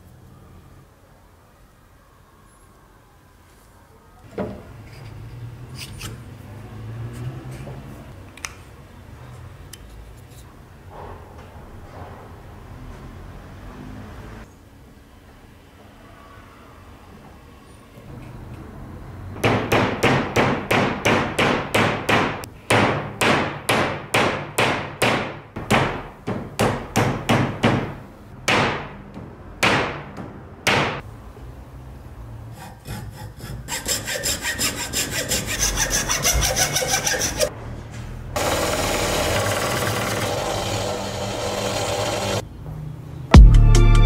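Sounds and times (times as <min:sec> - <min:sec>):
belt sander grinding steel: 0:32.8 - 0:37.5, 0:38.4 - 0:42.4.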